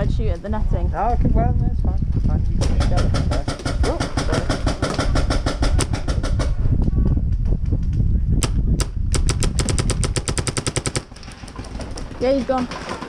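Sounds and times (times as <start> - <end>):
wind buffeting microphone: 0.0 - 13.0
paintball marker firing: 2.7 - 6.7, 8.4 - 11.1.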